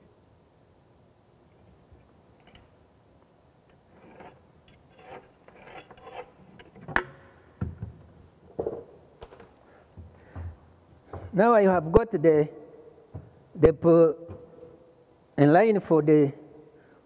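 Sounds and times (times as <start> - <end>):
level scraping on wallboard: 3.7 - 7.0.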